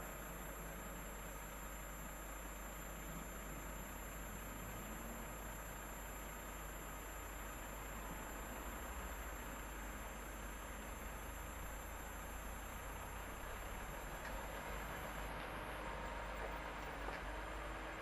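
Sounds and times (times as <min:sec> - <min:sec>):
distant diesel locomotive rumble: 0:10.2 - 0:18.0.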